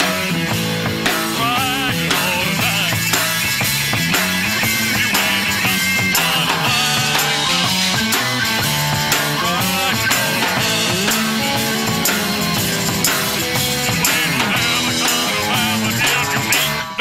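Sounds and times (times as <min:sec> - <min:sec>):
live rock band instrumental: 0:00.0 - 0:17.0.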